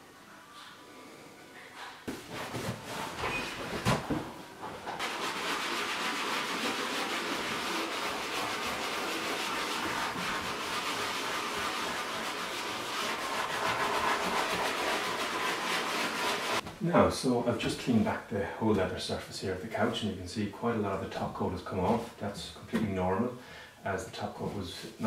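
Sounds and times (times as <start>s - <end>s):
cloth rubbing on leather: 5.0s - 16.6s.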